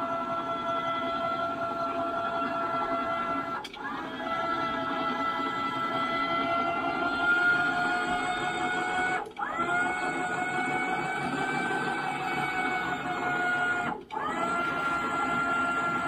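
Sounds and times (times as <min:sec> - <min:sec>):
electric winch motor whining: 0:05.1 - 0:16.0.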